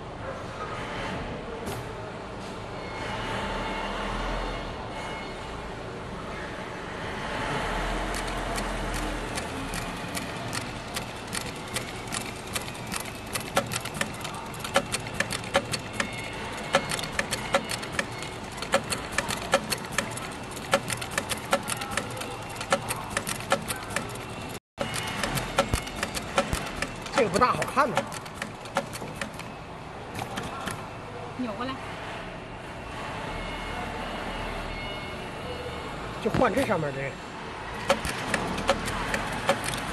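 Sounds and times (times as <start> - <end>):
heavy sewing machine stitching: 7.9 - 29.5, 37.8 - 39.9.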